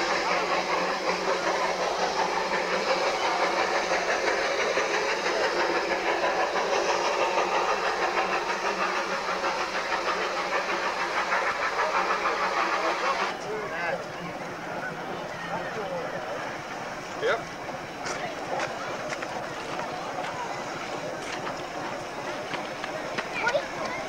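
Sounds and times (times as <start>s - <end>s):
steam locomotive hissing: 0.0s - 24.0s.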